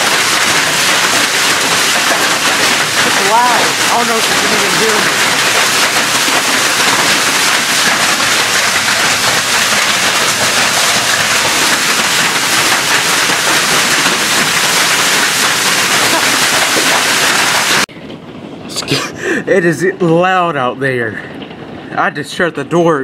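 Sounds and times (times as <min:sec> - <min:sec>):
hail and heavy rain on pavement: 0:00.0 - 0:17.9.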